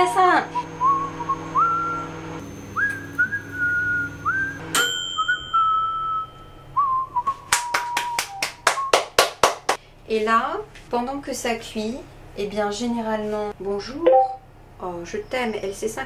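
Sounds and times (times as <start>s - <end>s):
person whistling a tune: 0.8s - 2.1s, 2.8s - 4.6s, 5.2s - 9.1s
ringing metallic ding: 4.8s - 6.7s
hand claps: 7.5s - 9.8s.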